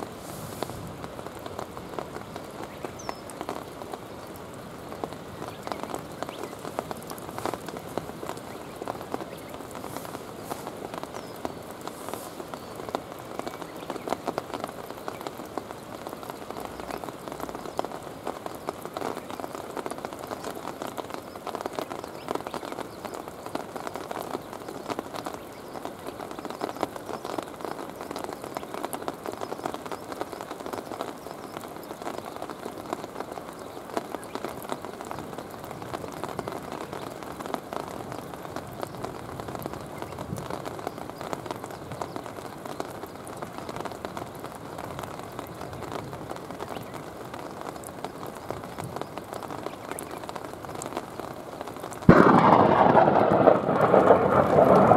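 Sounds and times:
steady rain falling: 0.0 - 54.9.

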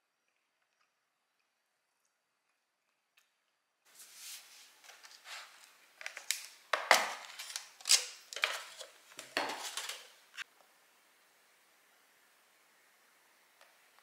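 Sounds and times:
plastic lid crackling: 6.0 - 10.4.

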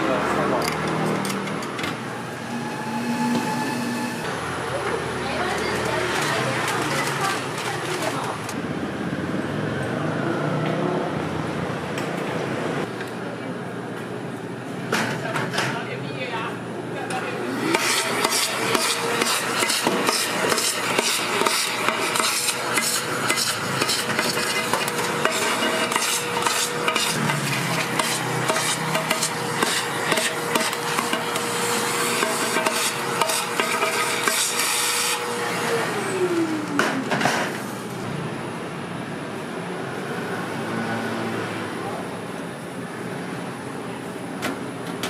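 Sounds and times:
metal tools scraping a griddle: 17.7 - 35.3.

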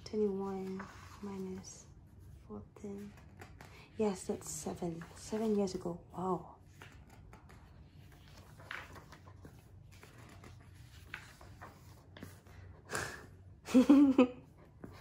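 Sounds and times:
magazine pages turning: 6.6 - 12.7.

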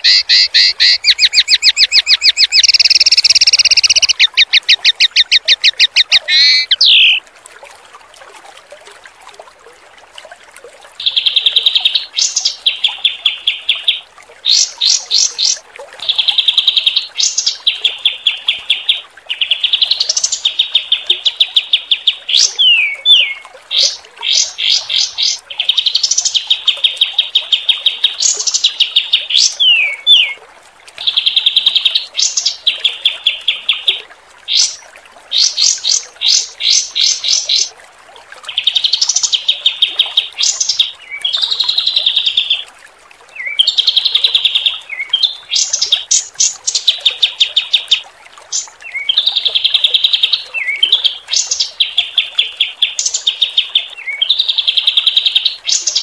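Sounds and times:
songbird trills and whistles: 0.0 - 7.2
faint running water: 0.0 - 56.0.

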